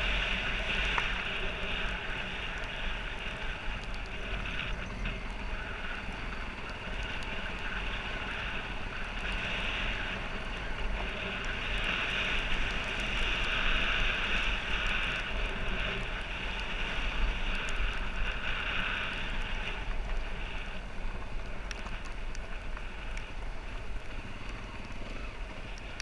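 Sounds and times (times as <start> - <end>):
dirt bike engine running: 0.0 - 26.0
wind noise on microphone: 0.0 - 26.0.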